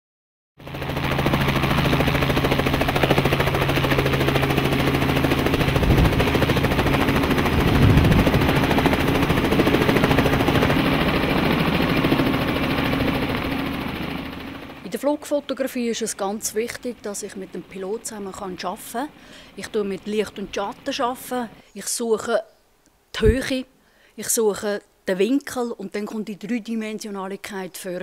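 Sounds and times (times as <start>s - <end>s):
helicopter rotor chop: 0.6s - 21.6s
helicopter engine drone: 0.6s - 21.7s.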